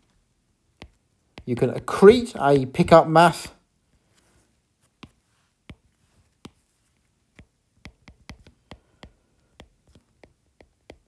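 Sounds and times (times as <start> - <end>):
stylus tapping on glass screen: 0.8 - 1.6, 7.3 - 11.0.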